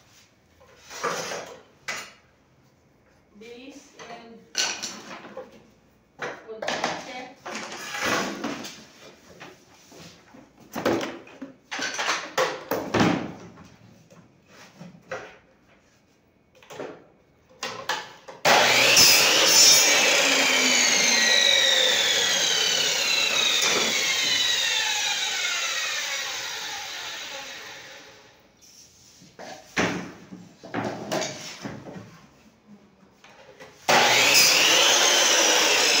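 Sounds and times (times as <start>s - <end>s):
miter saw running: 18.5s - 28.2s, 33.9s - 36.0s.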